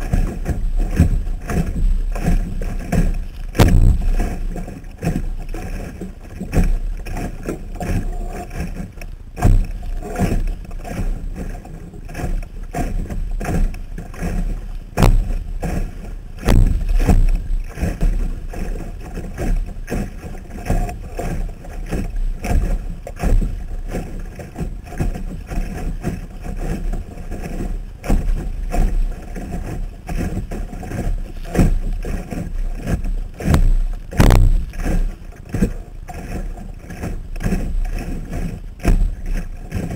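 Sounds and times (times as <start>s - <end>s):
steady low rumble: 0.0s - 7.1s, 14.7s - 19.8s, 33.1s - 35.3s
water splashing against boat hull: 0.0s - 39.9s
irregular knocks: 16.4s - 17.4s, 33.5s - 34.7s.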